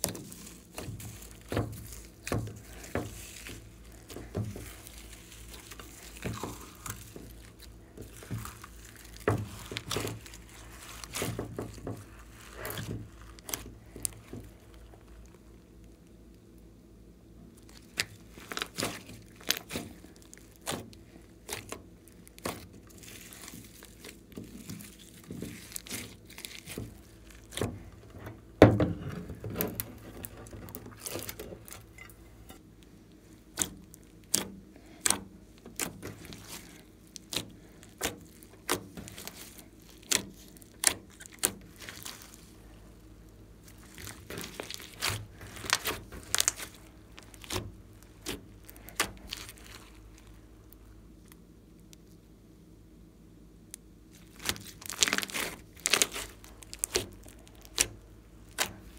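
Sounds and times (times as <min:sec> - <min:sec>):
slime clicking and popping: 0:53.7 - 0:58.9.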